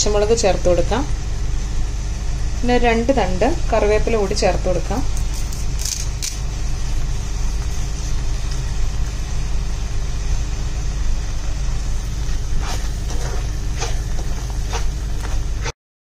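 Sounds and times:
low rumble and hiss: 0:00.0 - 0:15.7
food sauteing in pan: 0:05.1 - 0:15.7
spatula stirring and scraping: 0:11.6 - 0:15.7.

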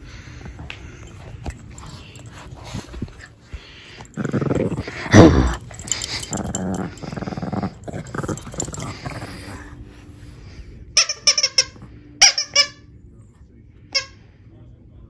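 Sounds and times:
dogs growling while play-fighting: 0:00.2 - 0:10.0.

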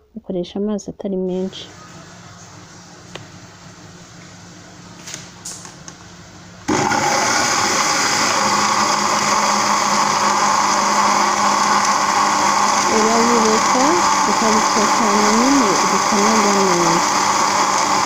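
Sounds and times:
blender running: 0:06.7 - 0:18.0.

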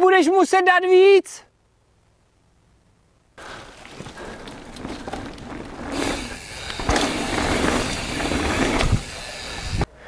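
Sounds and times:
bike tyres on dirt and leaves: 0:03.4 - 0:09.9.

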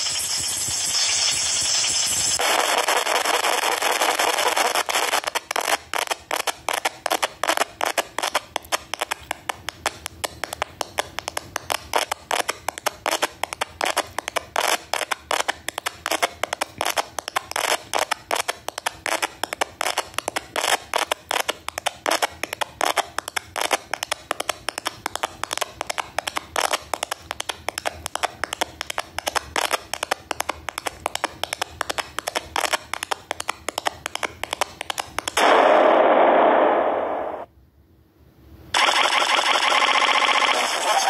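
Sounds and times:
distorted stuttering audio sample: 0:00.0 - 0:06.1.

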